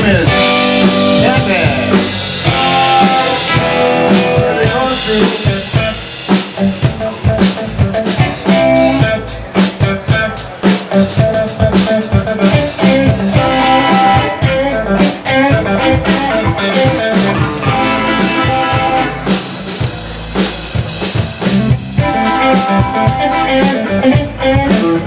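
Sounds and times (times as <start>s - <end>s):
drum kit: 0.0s - 25.0s
electric guitar lead lines: 0.0s - 25.0s.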